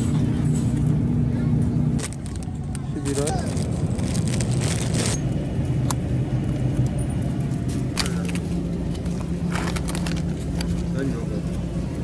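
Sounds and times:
store low rumble: 0.0s - 12.0s
plastic packaging crinkling: 2.0s - 5.2s, 9.5s - 10.6s.

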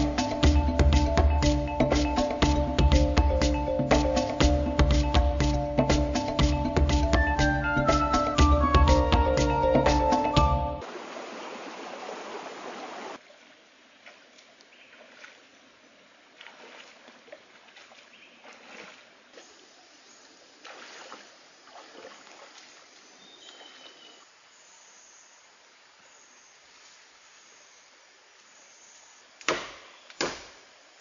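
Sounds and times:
rocky stream flowing: 10.8s - 24.5s
feet wading through water: 10.9s - 24.3s.

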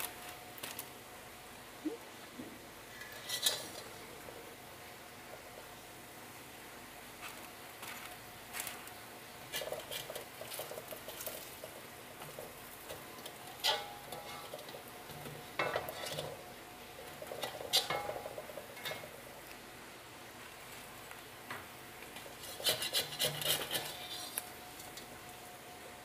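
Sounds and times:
metal spatula scraping a wok: 2.9s - 4.0s, 9.5s - 16.4s, 17.1s - 19.0s, 22.3s - 24.4s
oil sizzling: 3.0s - 20.6s.

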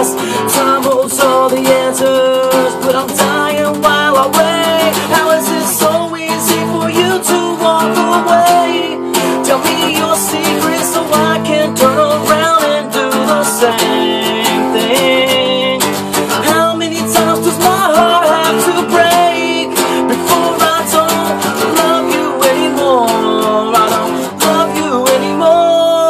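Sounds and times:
acoustic guitar strumming: 0.0s - 26.0s
man singing: 0.0s - 26.0s.

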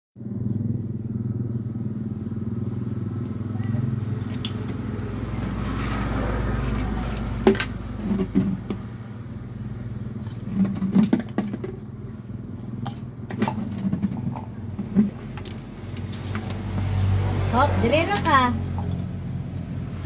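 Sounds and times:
loud vehicle passing: 0.2s - 20.0s
vehicle engine humming: 0.2s - 20.0s
plastic jug and cup clattering: 7.0s - 8.9s, 10.2s - 16.6s.

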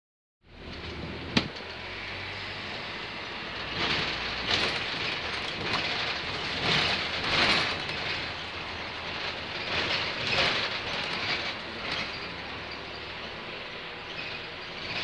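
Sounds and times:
road and engine noise: 0.4s - 15.0s
rattling jolts: 3.6s - 12.8s.

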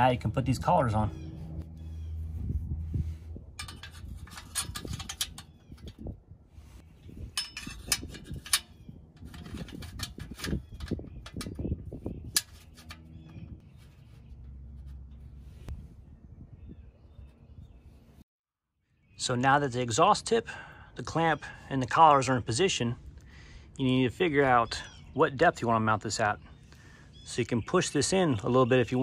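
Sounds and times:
metal clicks taps and scrapes: 3.6s - 6.1s, 7.3s - 11.7s, 12.3s - 15.3s.

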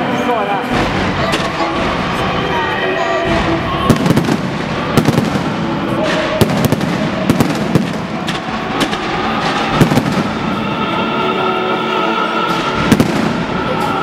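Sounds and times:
crackling hiss of fireworks: 3.8s - 10.7s, 12.5s - 14.0s
firework shells bursting: 3.9s - 10.6s.

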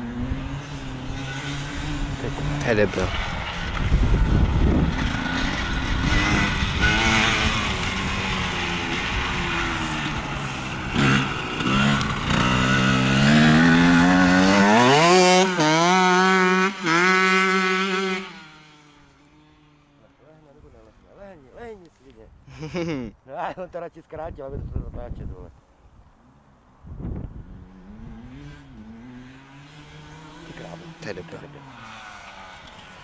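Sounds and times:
dirt bike engine revving: 0.0s - 20.0s, 27.3s - 33.0s.

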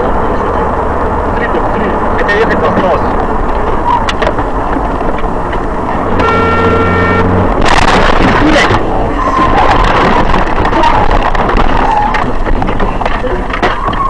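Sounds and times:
road and engine noise: 0.0s - 14.0s
rush of noise: 0.0s - 14.0s
steady pitched tone: 6.0s - 9.8s.

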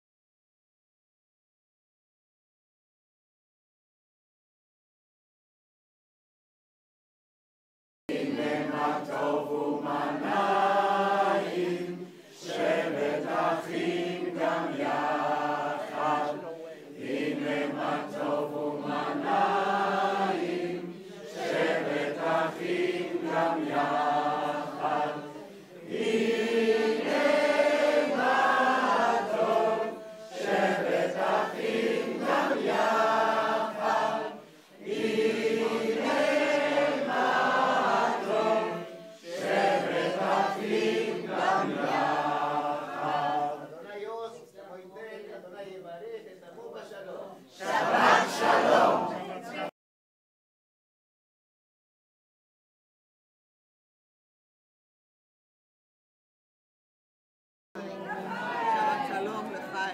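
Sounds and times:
group of people singing: 8.1s - 44.4s, 47.4s - 49.7s, 57.8s - 59.9s.

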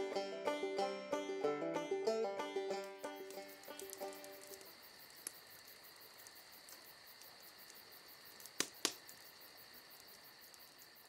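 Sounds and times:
insects trilling: 0.0s - 11.0s
sharp clicks: 6.2s - 9.3s.

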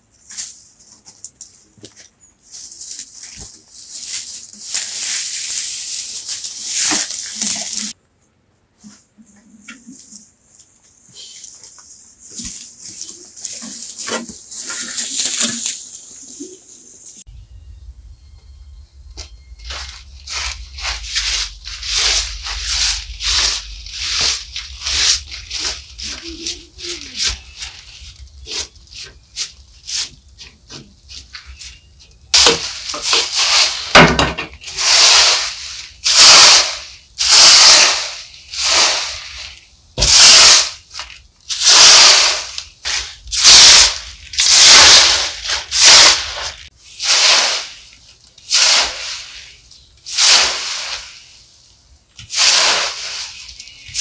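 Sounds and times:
scraping strokes: 19.2s - 51.6s, 52.2s - 54.0s.

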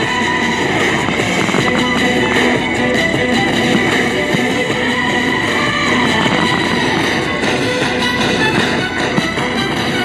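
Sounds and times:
instrumental music: 0.0s - 10.0s.

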